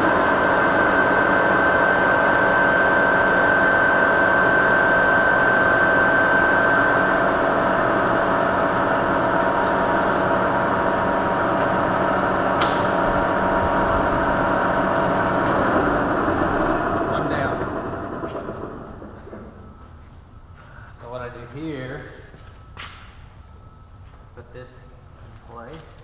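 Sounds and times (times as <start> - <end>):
milling machine spindle running: 0.0 - 20.0
high steady whine: 0.0 - 26.0
sharp click: 12.6 - 12.9.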